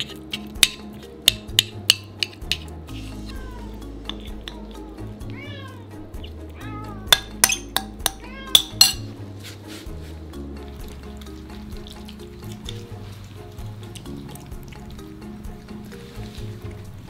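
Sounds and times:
metal spoon clinking on ceramic bowls: 0:00.0 - 0:02.8, 0:04.0 - 0:04.8, 0:07.1 - 0:09.2
cats meowing: 0:03.0 - 0:09.2.

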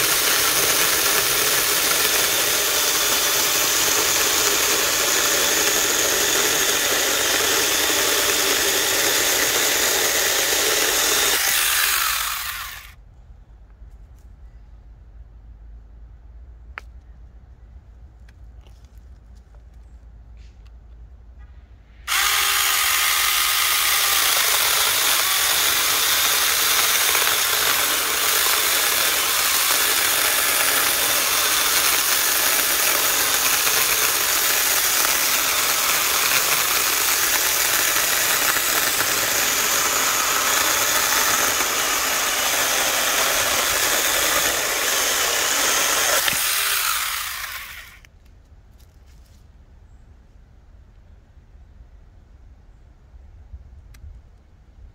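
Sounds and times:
chainsaw cutting log: 0:00.0 - 0:13.0, 0:22.1 - 0:48.1.

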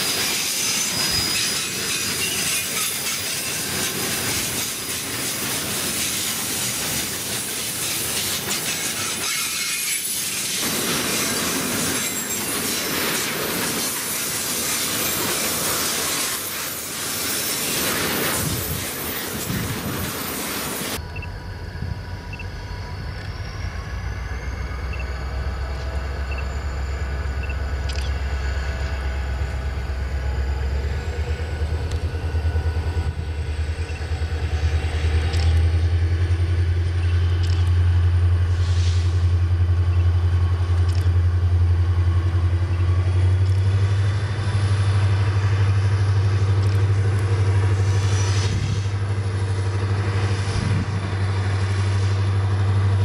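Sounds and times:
locomotive engine rumble: 0:17.8 - 0:53.0
high whine rising in pitch: 0:20.9 - 0:34.6.

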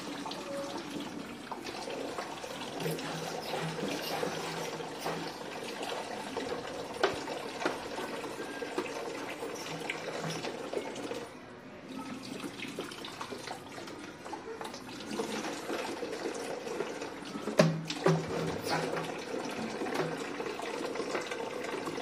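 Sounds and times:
water running into bucket: 0:00.0 - 0:11.3, 0:12.0 - 0:22.0.

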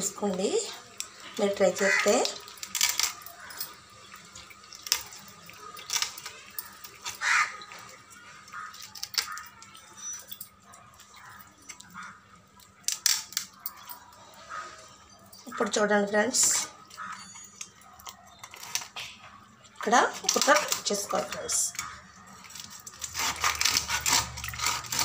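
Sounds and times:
knife scraping fish scales: 0:22.4 - 0:25.0.

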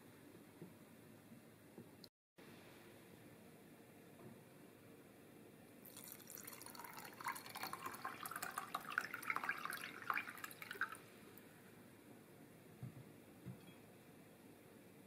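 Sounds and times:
water pouring into saucepan: 0:05.8 - 0:11.0.

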